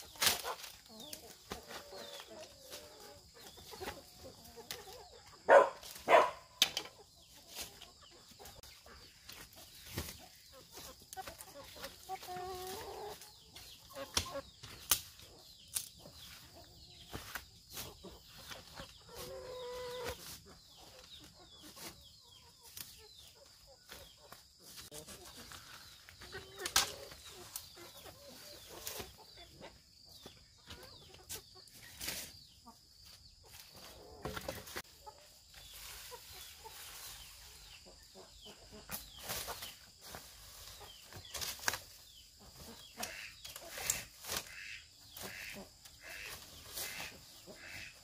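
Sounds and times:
chickens clucking: 0.0s - 48.0s.

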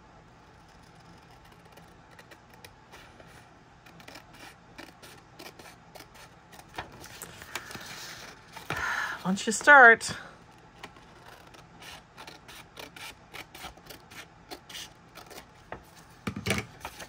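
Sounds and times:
scissors snipping paper: 0.6s - 3.1s, 3.8s - 7.8s, 10.8s - 15.5s.

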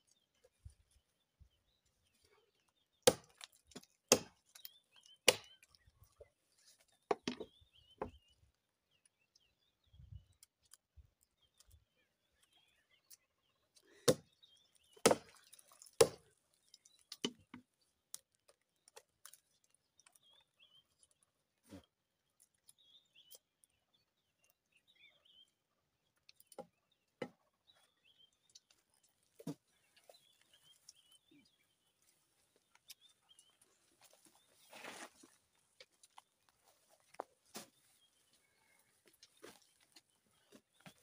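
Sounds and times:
axe chopping tree trunk: 3.0s - 4.5s, 5.2s - 5.6s, 14.0s - 14.3s, 15.0s - 16.3s.

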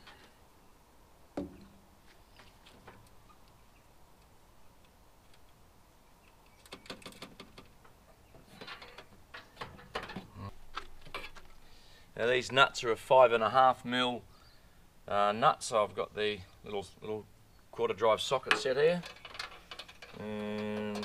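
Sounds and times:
small screws rattling on metal: 18.4s - 21.0s.

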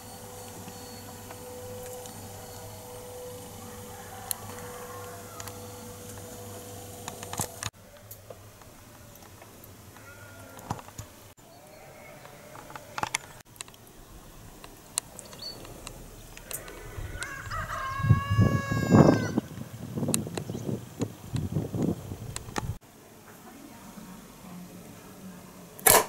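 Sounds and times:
rooster crowing: 0.7s - 7.5s, 15.4s - 19.6s.

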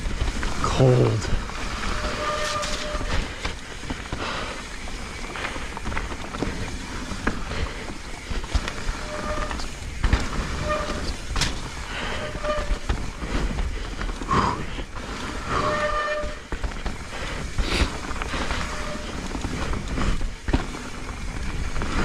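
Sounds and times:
bike tyres on muddy trail: 0.0s - 22.0s
wet disc brakes squealing: 0.6s - 3.4s, 8.4s - 13.4s, 15.2s - 20.2s.

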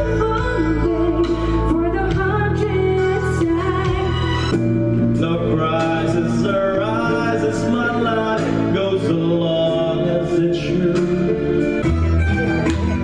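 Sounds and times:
instrumental backing music: 0.0s - 13.0s
man singing into a microphone: 5.2s - 11.8s.

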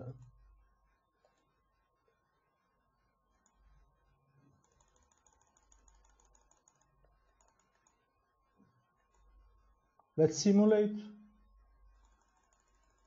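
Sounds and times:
thin steady whine: 0.0s - 13.0s
clicking at a computer: 3.3s - 3.8s, 4.5s - 8.1s, 12.0s - 13.0s.

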